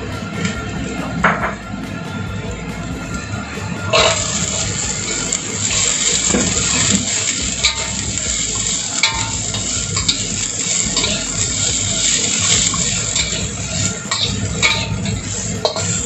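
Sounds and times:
vegetables sizzling in oil: 3.0s - 16.0s
spatula clinking against pan: 5.2s - 16.0s.

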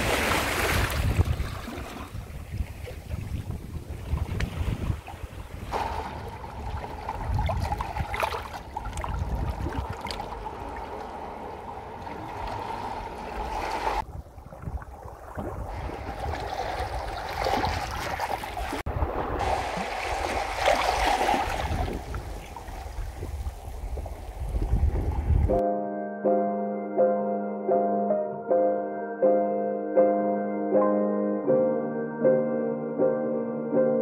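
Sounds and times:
water lapping among rocks: 0.0s - 25.5s.

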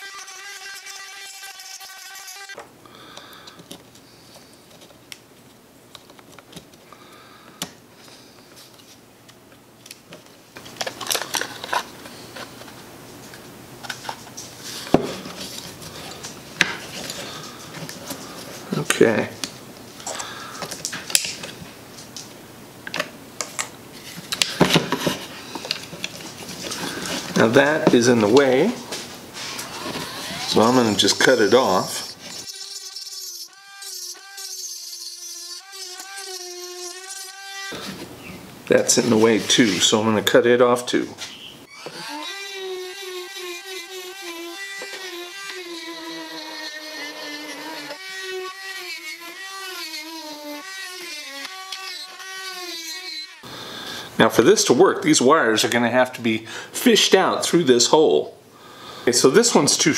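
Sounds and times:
rotary tool whining: 29.4s - 38.1s, 41.7s - 53.5s.

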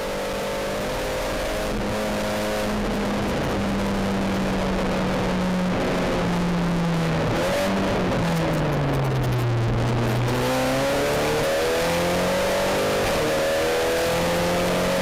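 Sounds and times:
car engine from inside cabin: 0.0s - 15.0s
tyre and road noise: 5.6s - 14.2s.

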